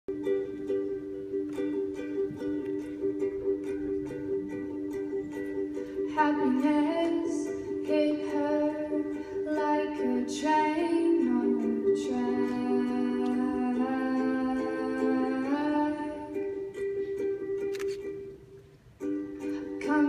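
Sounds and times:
acoustic guitar: 0.1 - 20.0
strummed ukulele: 0.1 - 20.0
woman singing slow melody: 6.1 - 16.6, 19.7 - 20.0.

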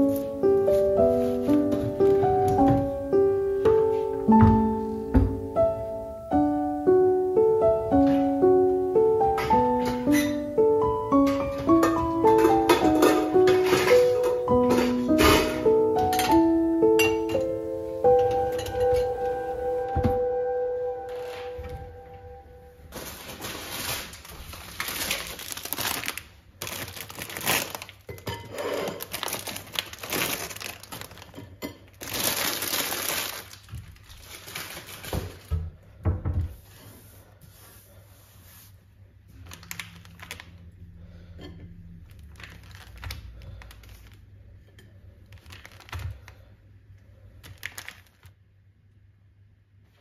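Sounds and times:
crispbread crinkling and crackling: 9.4 - 16.6, 22.9 - 35.8, 39.3 - 48.4.

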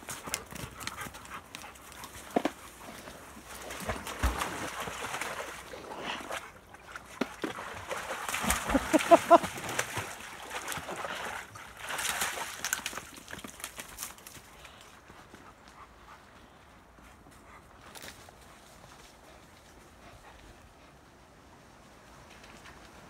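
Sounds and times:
dogs splashing in water: 0.0 - 14.4.

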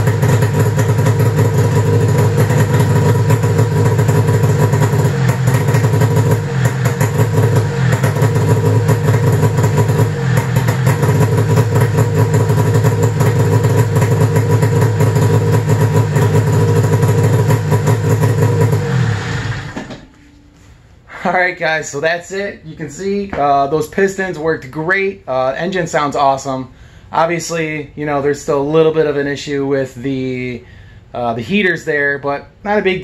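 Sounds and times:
snowmobile engine idling: 0.0 - 19.9.

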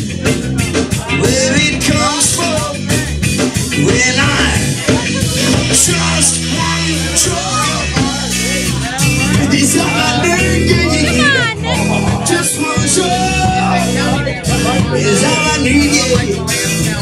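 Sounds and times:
live punk-reggae band playing: 0.0 - 17.0.

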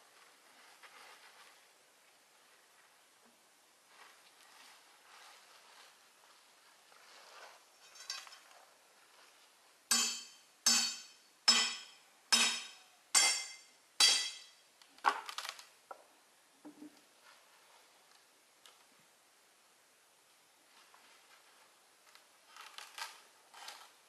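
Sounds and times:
hand tool striking log: 9.9 - 14.6.

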